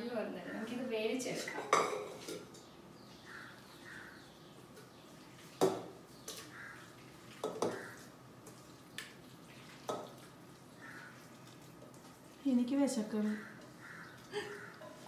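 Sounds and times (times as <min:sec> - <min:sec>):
pan and utensils clinking: 0:01.4 - 0:02.7.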